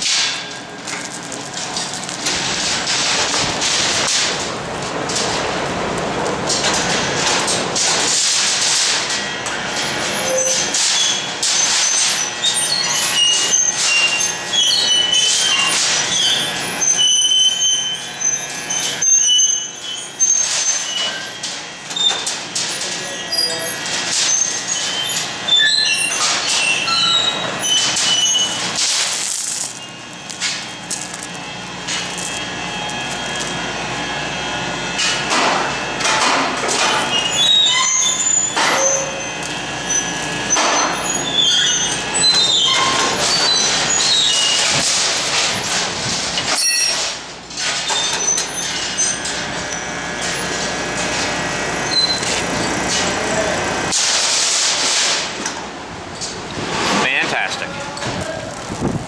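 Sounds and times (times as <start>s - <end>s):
hoist chains clinking: 0.0s - 3.1s, 27.2s - 33.6s, 36.6s - 44.6s, 58.0s - 59.0s.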